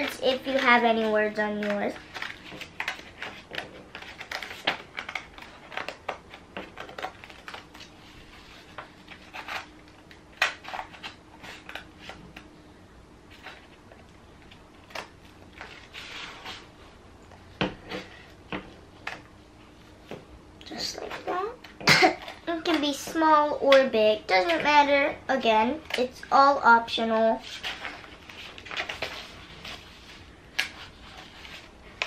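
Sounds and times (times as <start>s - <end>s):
paper rustling: 0.0s - 9.7s, 14.4s - 16.7s, 27.4s - 32.0s.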